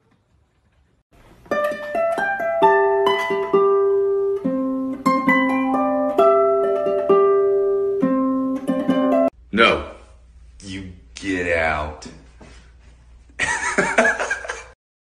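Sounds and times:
plucked string melody: 1.3 - 9.3.

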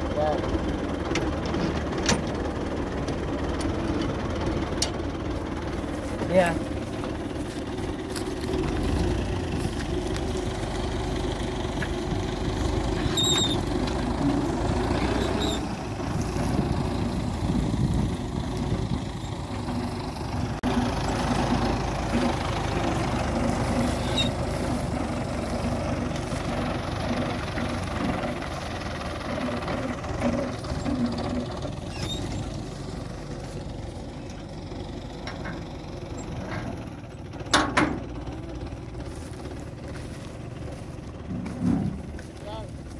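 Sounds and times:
tractor diesel engine running: 0.0 - 42.9.

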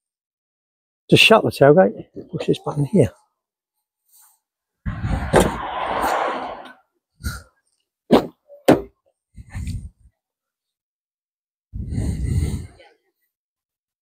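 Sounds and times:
rushing noise: 4.9 - 6.8.

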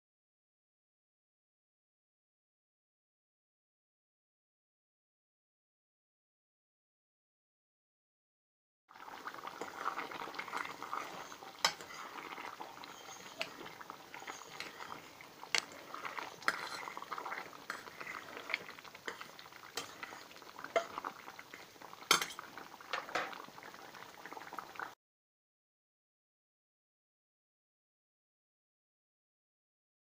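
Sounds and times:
sauce bubbling: 8.9 - 25.0
spoon clinking and scraping a pot: 9.4 - 23.4.

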